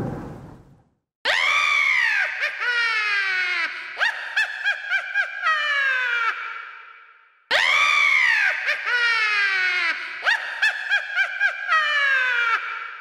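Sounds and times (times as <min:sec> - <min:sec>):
high-pitched cackling laugh: 0:02.4 - 0:06.7, 0:08.3 - 0:13.0.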